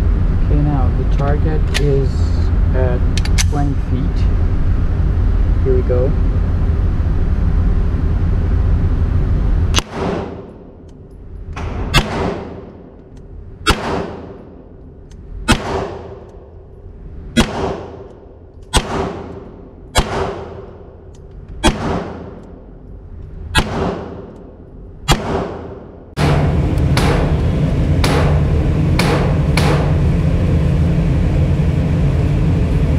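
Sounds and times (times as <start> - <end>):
pistol shots echoing indoors: 9.8 - 10.9, 11.6 - 22.9, 23.5 - 30.0.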